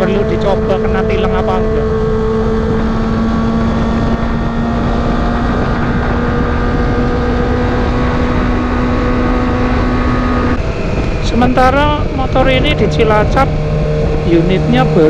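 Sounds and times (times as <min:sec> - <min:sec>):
motorcycle engine running: 0:00.0 - 0:15.0
wind rushing over microphone: 0:00.0 - 0:15.0.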